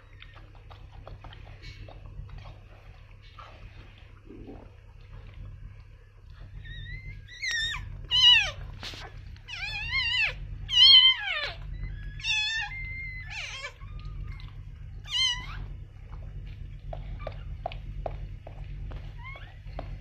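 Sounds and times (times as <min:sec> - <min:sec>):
puppy crying: 0:06.6 - 0:15.7, 0:19.0 - 0:19.9.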